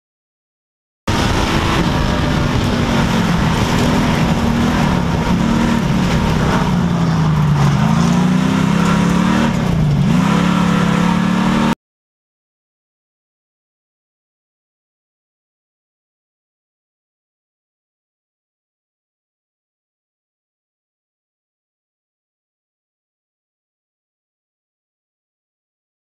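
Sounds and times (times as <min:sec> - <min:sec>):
race car engine: 0:01.1 - 0:11.8
road and wind noise: 0:01.1 - 0:11.8.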